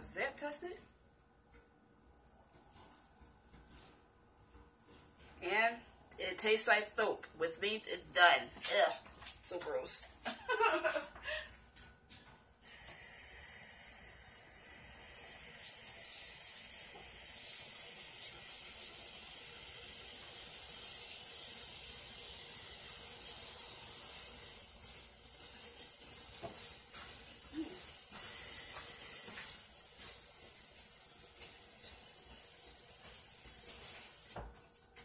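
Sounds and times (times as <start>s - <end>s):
steady high hiss: 12.6s - 34.6s.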